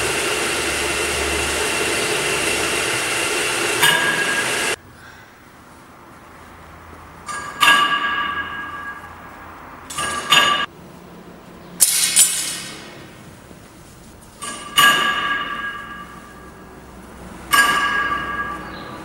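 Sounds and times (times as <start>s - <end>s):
ringing metal clanks: 7.2s - 10.7s, 14.4s - 16.5s, 17.5s - 19.0s.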